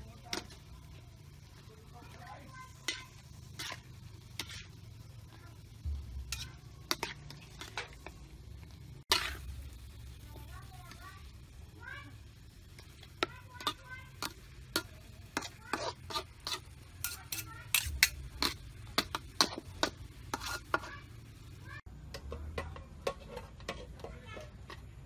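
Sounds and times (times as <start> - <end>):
metal utensils clinking on wok: 13.2 - 20.9, 22.1 - 25.0.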